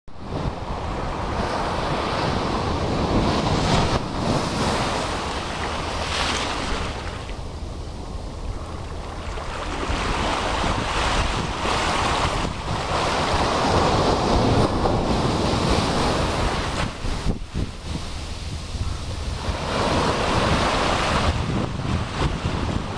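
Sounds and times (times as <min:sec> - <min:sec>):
wind buffeting microphone: 0:00.2 - 0:22.9
ocean surf breaking: 0:00.3 - 0:08.2, 0:08.8 - 0:22.9.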